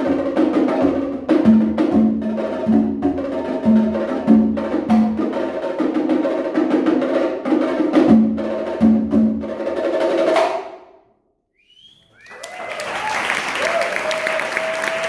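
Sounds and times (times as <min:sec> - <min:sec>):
fast drum percussion: 0:00.0 - 0:10.6.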